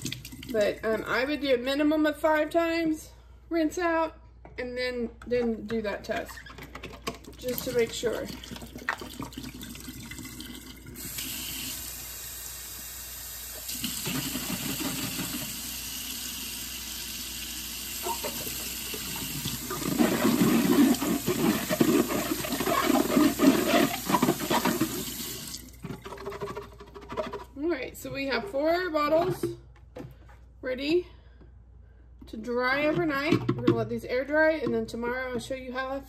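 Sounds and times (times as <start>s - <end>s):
faucet running into steel sink: 7.4s - 25.9s.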